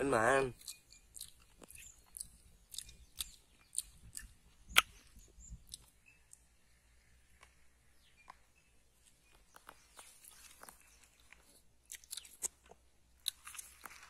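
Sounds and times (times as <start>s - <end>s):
wet mouth clicks chewing: 0.6s - 6.5s, 9.3s - 14.0s.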